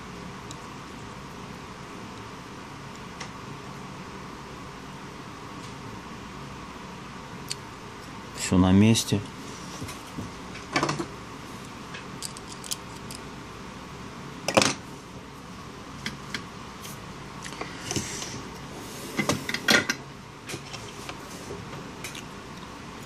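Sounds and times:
small metal parts clicking: 12.2 - 13.2.

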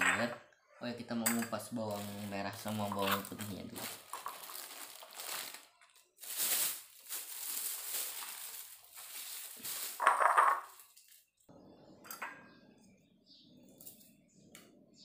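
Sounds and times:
plastic bag crinkling: 1.8 - 11.4.

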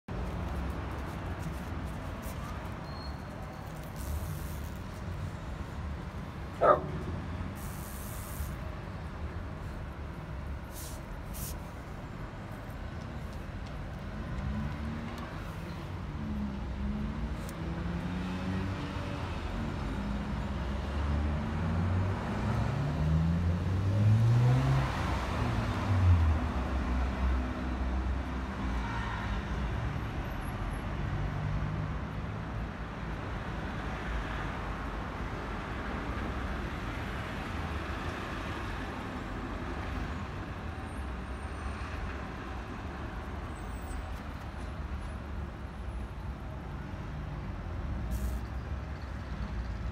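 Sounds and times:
low rumble of traffic: 0.1 - 49.9.

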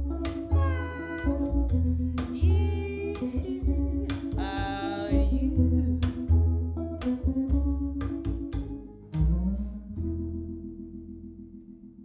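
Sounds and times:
double bass notes: 0.0 - 12.0
picked guitar notes: 0.0 - 12.0
woman singing: 0.3 - 6.4.

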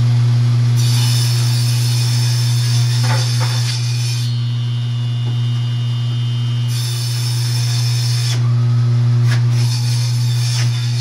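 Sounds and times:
saw blade cutting board: 0.8 - 4.4, 9.3 - 11.0
table saw motor hum: 0.8 - 11.0.

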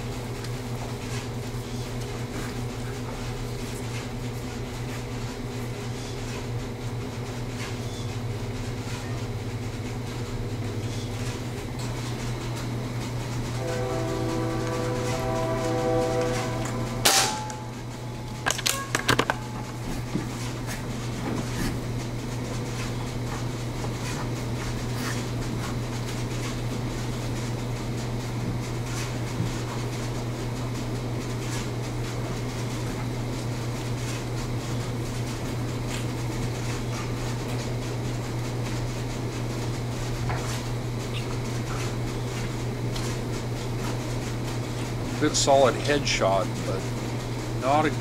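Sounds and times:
steady low hum: 0.0 - 48.0
air gun shot: 17.0 - 17.4.

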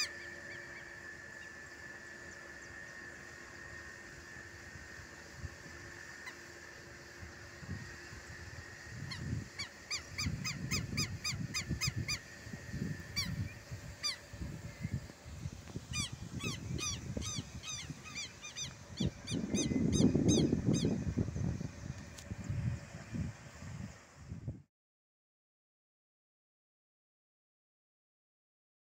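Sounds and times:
lapwing harsh calls: 0.0 - 1.7, 5.8 - 6.8, 8.1 - 15.0, 15.9 - 21.0.

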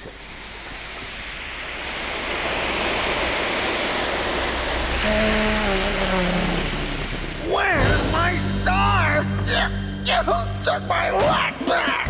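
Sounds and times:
surf-like rushing noise: 0.0 - 9.6
low tone sinking in pitch: 1.4 - 10.7.

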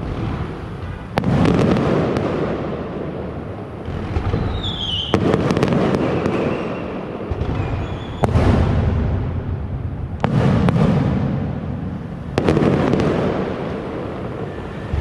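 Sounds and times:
fireworks bursting: 0.0 - 15.0
sharp firework bangs: 0.0 - 15.0
falling firework whistle: 3.9 - 8.8
low rumbling booms: 14.5 - 15.0.

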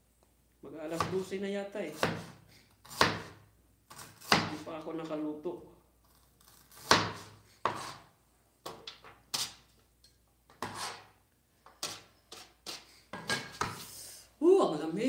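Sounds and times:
cleaver chopping on cutting board: 2.0 - 3.4, 4.0 - 4.6, 6.8 - 8.0.

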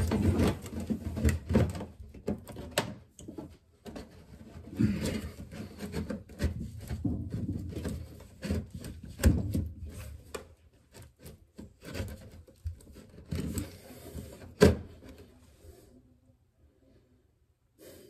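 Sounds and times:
metal duct scraping and rattling: 0.0 - 2.7, 3.9 - 14.6.

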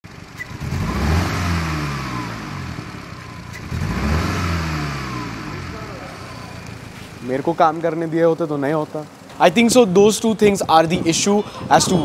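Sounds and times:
car engine revving and misfiring: 0.1 - 8.1.

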